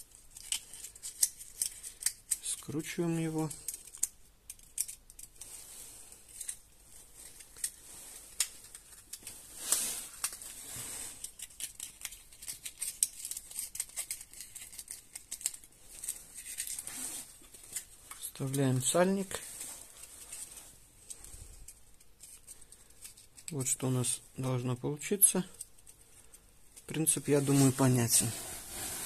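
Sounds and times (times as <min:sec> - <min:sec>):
plastic crinkling and crackling: 0:00.0 - 0:23.8
plastic rustle: 0:05.3 - 0:23.6, 0:26.0 - 0:29.0.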